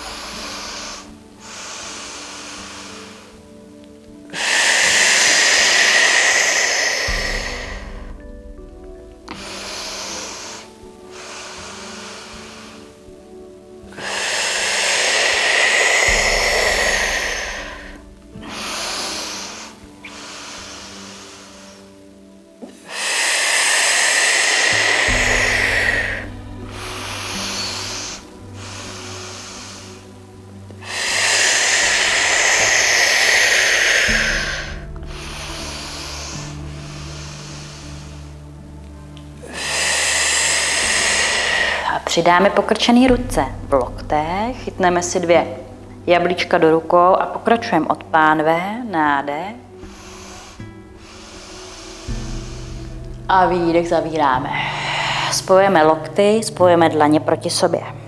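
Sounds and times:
woman breathing in through nose: 0:00.0 - 0:42.3, 0:49.6 - 0:53.4, 0:54.4 - 0:55.5
soft background music: 0:00.0 - 0:58.0
woman breathing out loudly: 0:04.3 - 0:13.3, 0:13.9 - 0:42.0.

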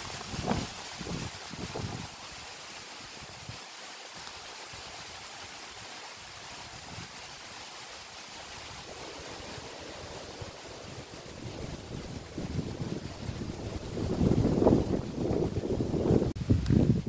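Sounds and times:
wind buffeting microphone: 0:00.0 - 0:02.2, 0:08.4 - 0:17.0
rain: 0:00.0 - 0:17.0
wind rushing through trees: 0:00.0 - 0:17.0.

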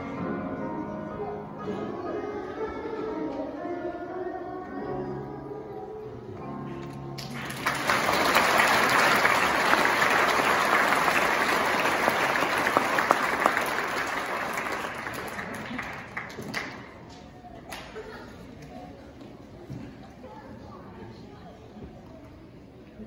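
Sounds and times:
audience applauding: 0:07.2 - 0:17.0.

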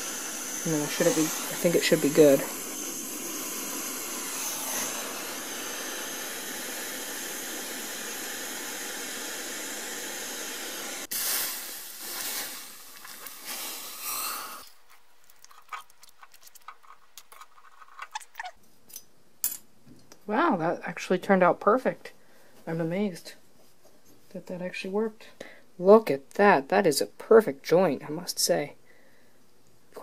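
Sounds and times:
gas torch hissing: 0:00.0 - 0:14.7
water sizzling on hot metal: 0:00.0 - 0:14.8.

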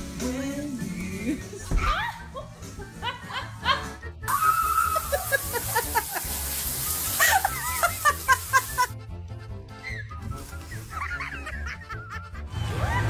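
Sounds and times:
background music: 0:00.0 - 0:13.0
high-pitched voices shrieking: 0:04.3 - 0:05.2
heavy rain pouring: 0:04.3 - 0:08.9.

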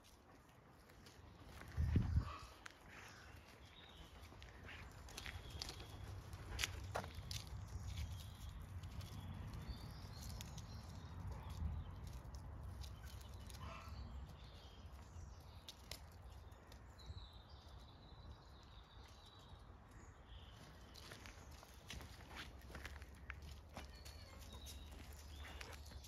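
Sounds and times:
paws scuffing on gravel: 0:00.0 - 0:16.0, 0:20.5 - 0:26.0
small birds chirping: 0:00.0 - 0:26.0.

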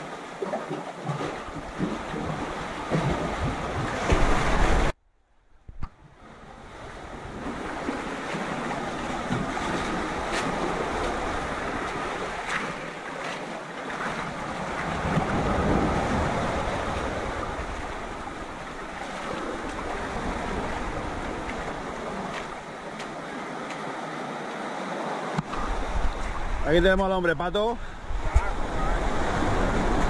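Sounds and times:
waves washing over pebbles: 0:06.7 - 0:27.0, 0:28.0 - 0:30.0.

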